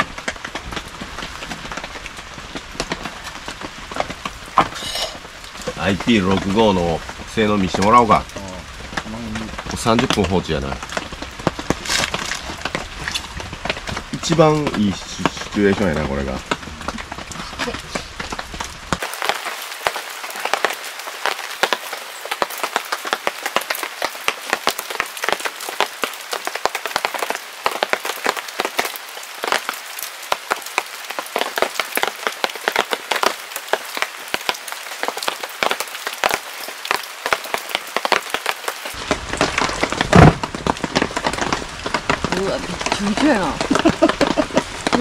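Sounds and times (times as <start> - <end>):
rain ticking on plastic casing: 0.0 - 45.0
heavy thump: 40.1 - 40.7.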